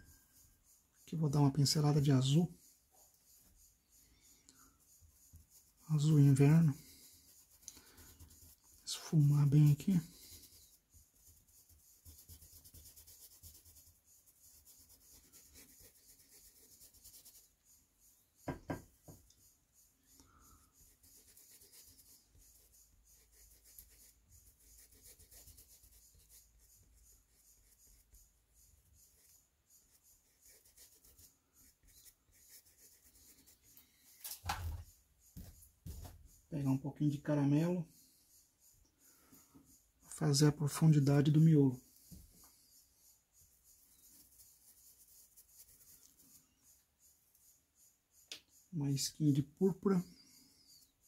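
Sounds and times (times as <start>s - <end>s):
paintbrush scratching on canvas: 0.0s - 51.0s.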